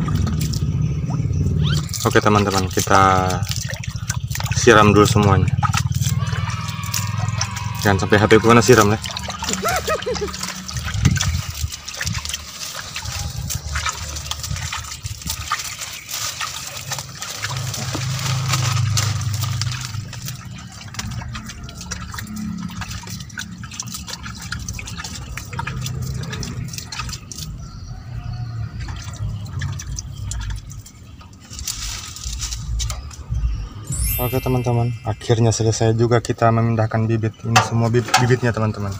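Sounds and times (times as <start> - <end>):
water splashing onto soil: 0.0 - 36.4, 37.4 - 38.9
low rumble: 9.0 - 12.3.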